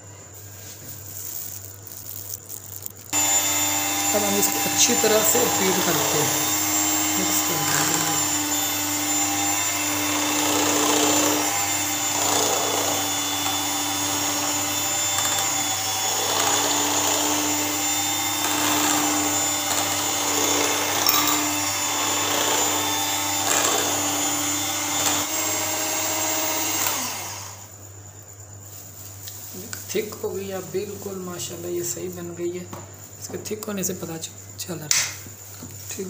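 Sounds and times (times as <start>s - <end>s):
electric hand beater whipping: 1.2s - 27.6s.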